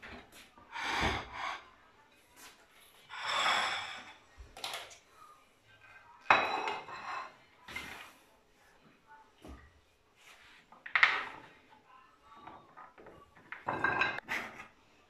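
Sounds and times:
ceramic plate clink: 0:06.3 - 0:07.4.

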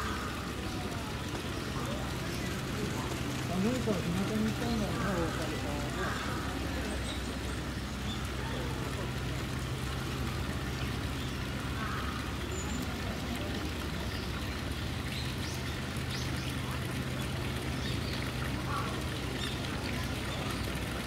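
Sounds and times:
constant low hum: 0:00.0 - 0:21.0.

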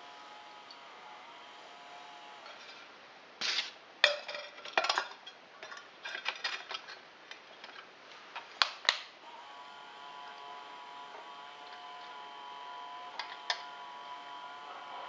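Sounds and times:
electric motor humming: 0:00.0 - 0:02.6, 0:09.2 - 0:15.0.

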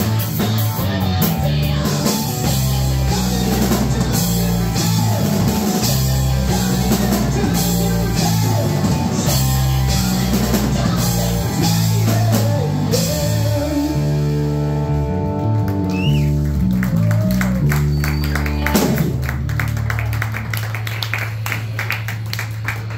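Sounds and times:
drum kit with crashing cymbals: 0:00.0 - 0:14.0
electric bass: 0:00.0 - 0:22.9
electric guitar: 0:00.0 - 0:22.9.

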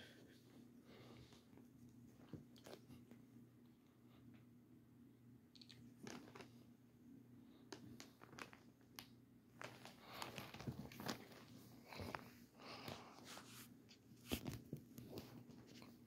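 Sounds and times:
rustles and taps on carpet: 0:12.9 - 0:16.0.

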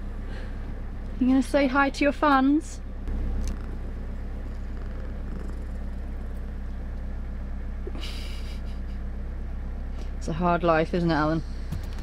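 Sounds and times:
cat purring: 0:03.4 - 0:07.2.

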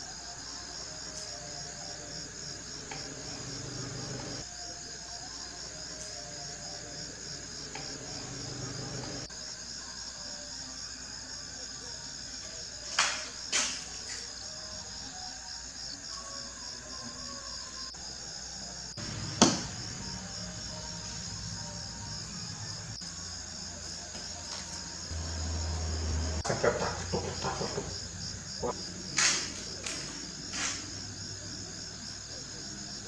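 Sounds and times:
cricket chirping: 0:00.0 - 0:33.0
sharp knocks: 0:19.4 - 0:19.7.

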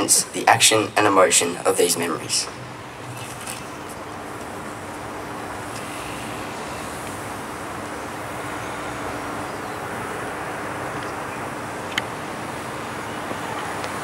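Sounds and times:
faint steady hum: 0:00.0 - 0:14.0
rushing background noise: 0:00.0 - 0:14.0.

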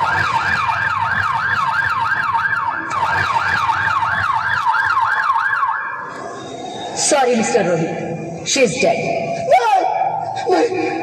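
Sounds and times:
emergency siren wailing: 0:00.0 - 0:07.1.

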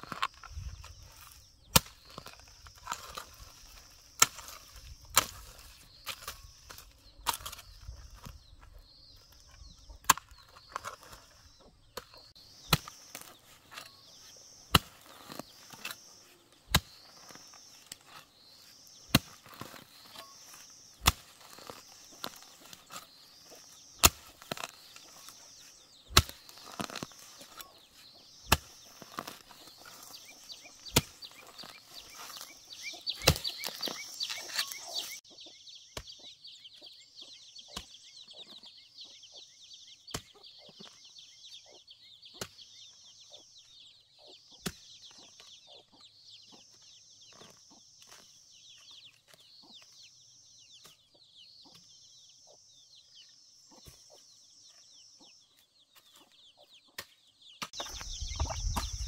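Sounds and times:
hoe chopping dry soil: 0:00.0 - 0:35.2, 0:40.0 - 0:41.0, 0:42.3 - 0:43.0, 0:44.6 - 0:45.5, 0:57.0 - 0:59.0
high chirping call: 0:00.2 - 0:46.7, 0:57.6 - 0:59.0.

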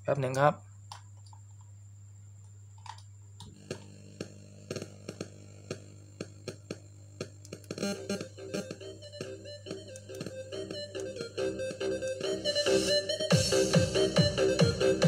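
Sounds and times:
steady low hum: 0:00.0 - 0:15.0
music with steady beat: 0:04.7 - 0:15.0.

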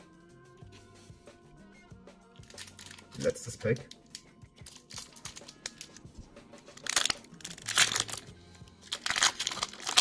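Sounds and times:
soft background music: 0:00.0 - 0:10.0
foil wrapper crinkling: 0:02.4 - 0:06.0, 0:06.7 - 0:10.0.

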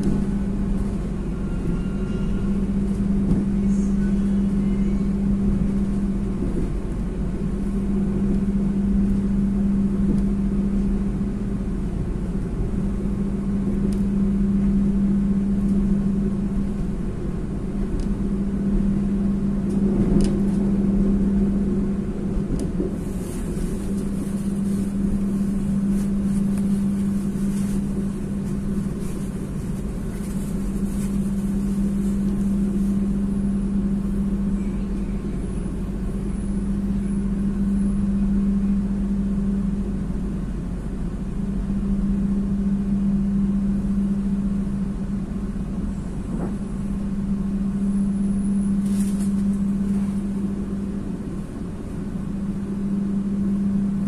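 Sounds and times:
train coach rumble and hum: 0:00.0 - 0:54.0
faint high whines: 0:00.3 - 0:06.1, 0:23.1 - 0:40.0, 0:41.4 - 0:51.2.

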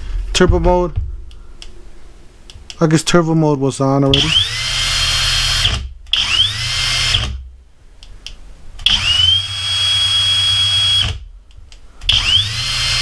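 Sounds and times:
drill whine: 0:04.2 - 0:07.4, 0:08.9 - 0:11.2, 0:12.1 - 0:13.0.

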